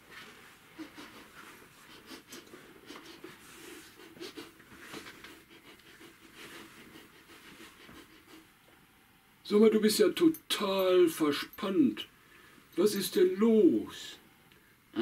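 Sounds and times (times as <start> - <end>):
person making sniffing sounds: 0.2 - 8.5.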